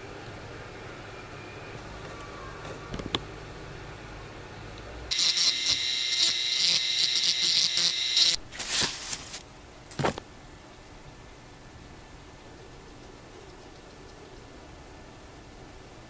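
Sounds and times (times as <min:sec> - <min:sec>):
rotary tool whining: 0:05.1 - 0:08.4.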